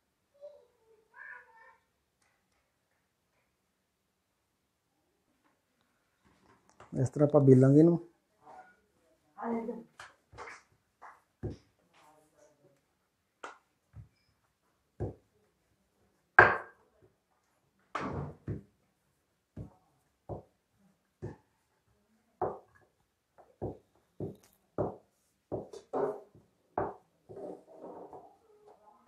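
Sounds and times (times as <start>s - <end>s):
rolling pin knocking on stone countertop: 16.4s - 16.8s, 22.4s - 22.8s, 23.6s - 26.2s, 26.8s - 27.0s.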